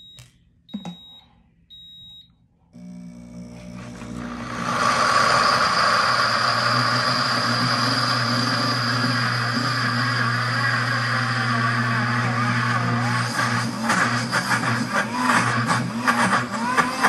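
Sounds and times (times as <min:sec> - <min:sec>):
control panel beep: 0:00.0 - 0:02.3
blender motor grinding: 0:02.8 - 0:17.0.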